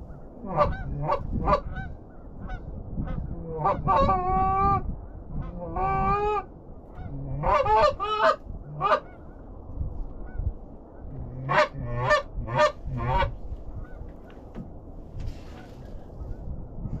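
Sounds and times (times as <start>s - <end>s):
goose honking: 0.4s - 2.6s, 7.0s - 9.2s, 11.4s - 14.0s.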